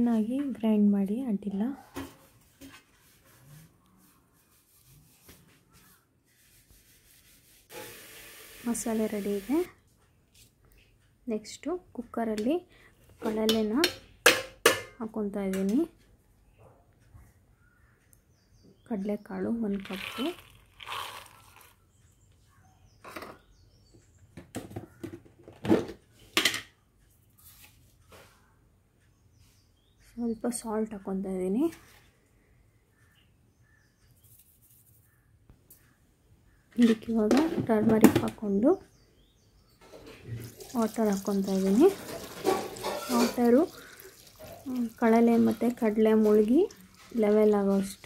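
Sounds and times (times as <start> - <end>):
kitchen items knocking and rustling: 13.2 - 15.0, 24.3 - 26.7, 36.8 - 38.4, 39.8 - 48.0.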